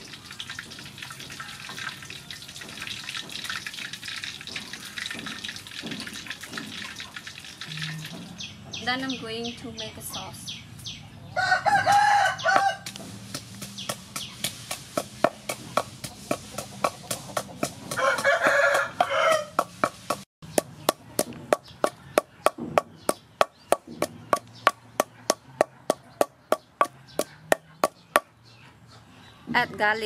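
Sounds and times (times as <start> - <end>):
pestle pounding in wooden mortar: 2.6 - 3.7, 4.4 - 7.0, 11.9 - 28.4
rooster crowing: 11.3 - 12.9, 17.9 - 19.6.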